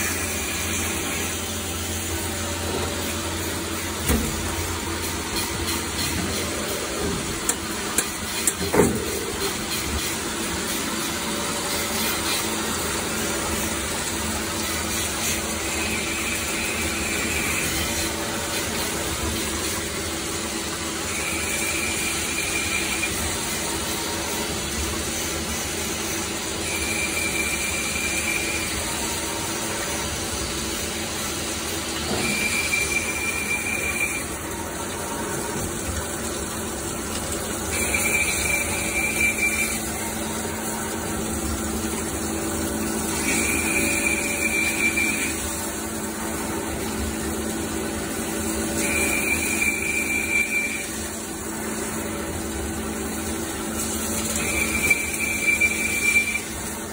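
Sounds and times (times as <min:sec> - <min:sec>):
high-pitched machine whine: 0:00.0 - 0:36.5, 0:37.4 - 0:56.9
lathe running: 0:00.0 - 0:56.9.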